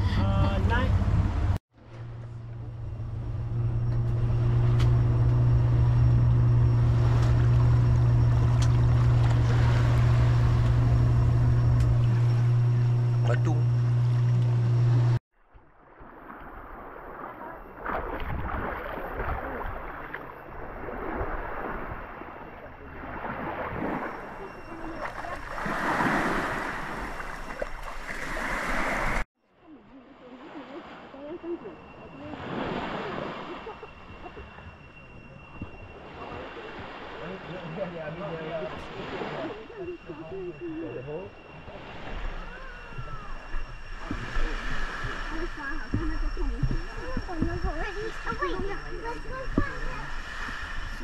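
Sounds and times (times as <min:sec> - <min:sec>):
motor droning: 0:00.0 - 0:15.2, 0:30.0 - 0:51.0
water noise: 0:00.0 - 0:51.0
small waves washing over sand: 0:15.9 - 0:29.2, 0:36.0 - 0:40.1.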